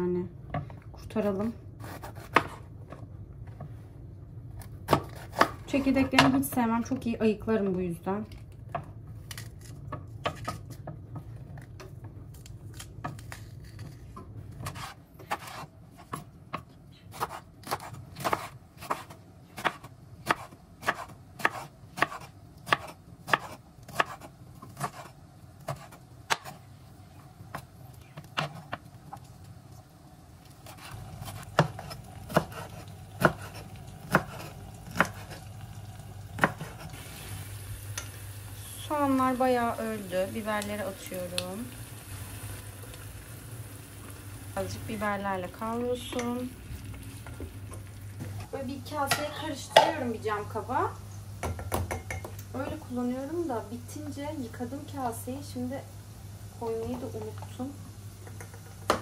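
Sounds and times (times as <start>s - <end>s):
knife chopping on cutting board: 4.9s - 5.6s, 14.6s - 26.6s, 30.6s - 35.4s, 36.4s - 36.9s.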